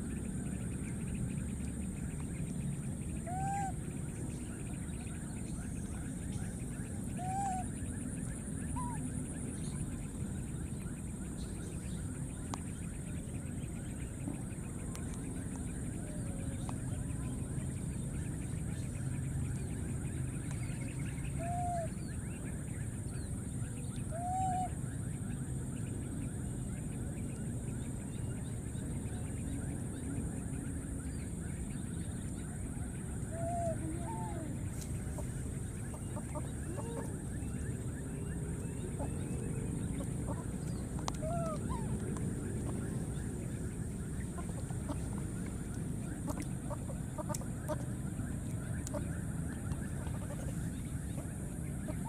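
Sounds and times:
low background rumble: 0.0s - 52.0s.

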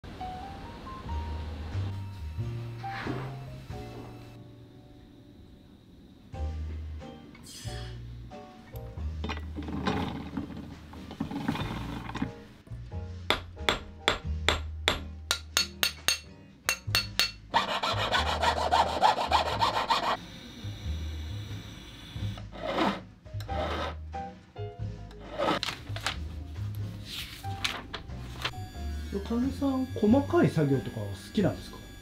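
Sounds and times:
soft background music: 0.1s - 32.0s
rolling mill grinding: 9.2s - 12.5s
hand file rasping on a ring: 17.2s - 20.2s.

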